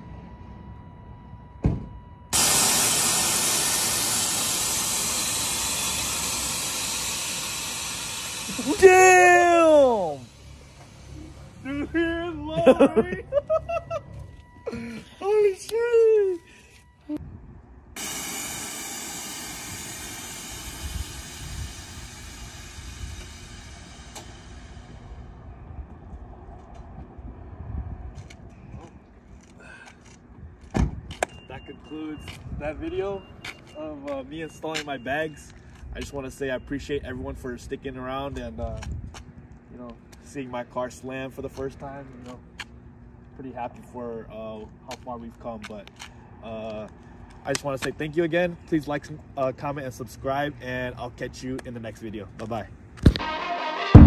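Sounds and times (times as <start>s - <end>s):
short thump: 1.6s - 2.0s, 30.7s - 31.4s
air suspension hissing: 2.3s - 12.4s, 18.0s - 25.4s.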